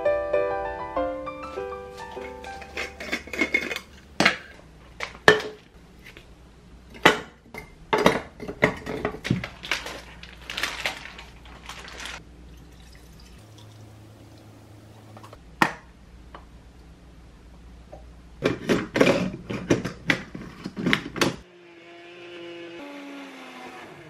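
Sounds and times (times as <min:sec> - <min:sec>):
jar lid unscrewing: 0:02.2 - 0:04.0
glass jar clinking and clicking: 0:02.5 - 0:04.0.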